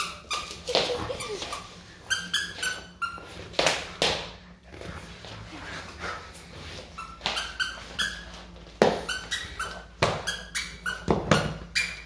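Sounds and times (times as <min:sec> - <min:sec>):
squeaky toy squeaks: 0:00.0 - 0:03.2, 0:07.0 - 0:08.3, 0:09.0 - 0:12.0
puppy scuffling on floor: 0:00.0 - 0:11.5.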